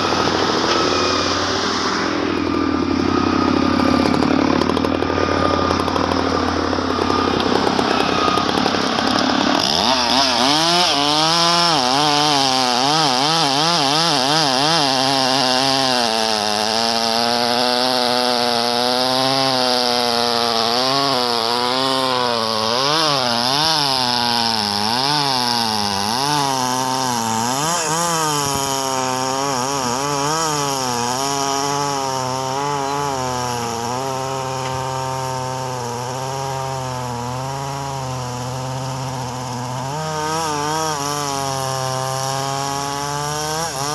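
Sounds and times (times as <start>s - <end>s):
engine running steadily: 0.0s - 10.4s
chainsaw cutting log: 0.0s - 43.9s.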